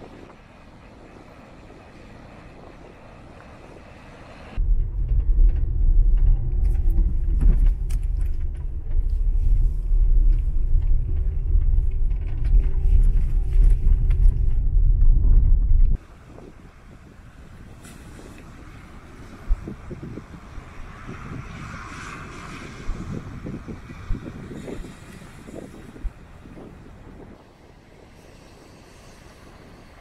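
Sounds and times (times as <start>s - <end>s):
steady low rumble: 0.0s - 30.0s
light rattles and clicks: 4.6s - 16.0s.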